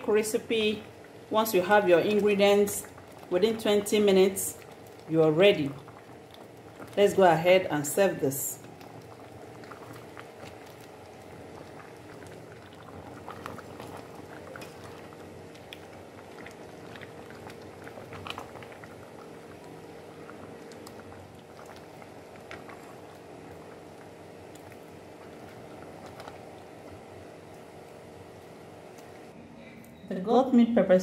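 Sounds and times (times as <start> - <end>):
soup bubbling: 0.1 - 29.4
spatula stirring: 5.7 - 28.0.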